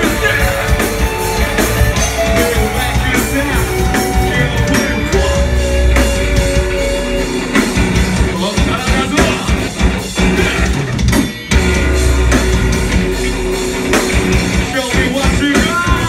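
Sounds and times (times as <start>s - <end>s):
metal band playing live: 0.0s - 16.0s
person singing: 2.2s - 7.3s.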